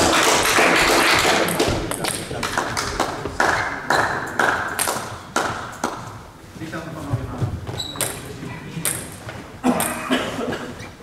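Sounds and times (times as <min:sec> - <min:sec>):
table tennis ball clicking: 0:08.8 - 0:09.2.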